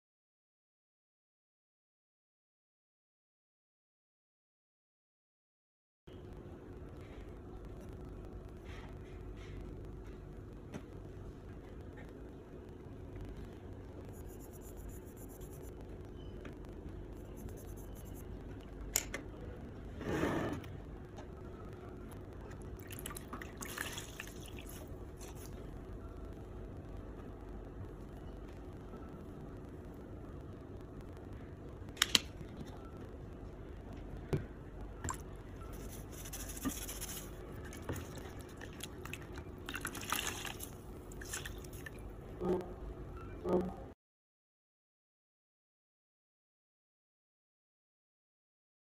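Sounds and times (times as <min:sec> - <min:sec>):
low steady hum: 0:06.1 - 0:44.0
makeup brush brushing skin: 0:35.7 - 0:37.4
wet squishing and splashing: 0:38.0 - 0:42.0.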